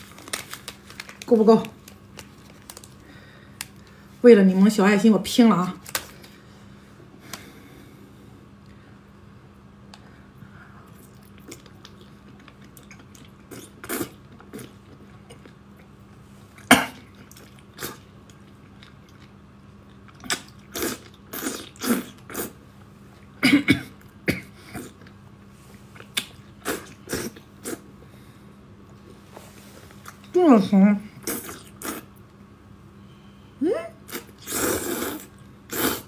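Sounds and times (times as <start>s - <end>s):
person coughing: 16.7s - 17.0s, 23.4s - 24.9s
person slurping noodles: 34.1s - 36.0s.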